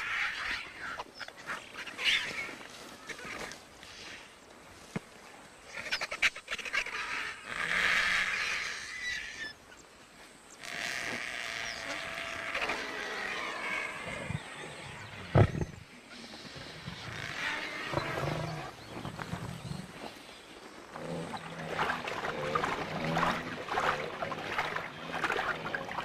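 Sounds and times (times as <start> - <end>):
lions growling: 16.8 - 19.8.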